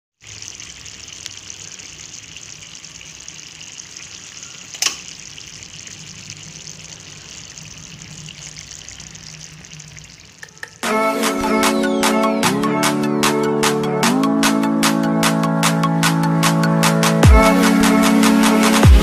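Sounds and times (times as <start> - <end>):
sauce simmering in a pan: 0.2 - 10.8.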